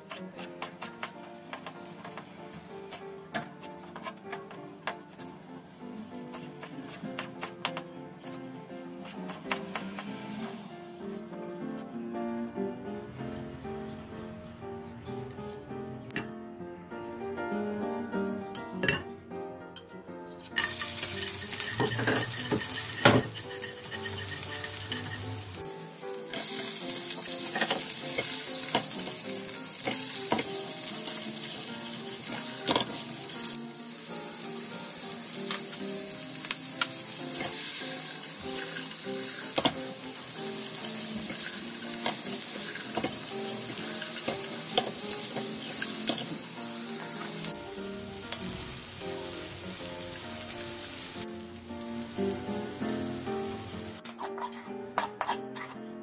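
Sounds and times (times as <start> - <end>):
oil sizzling in a frying pan: 20.6 - 54.0.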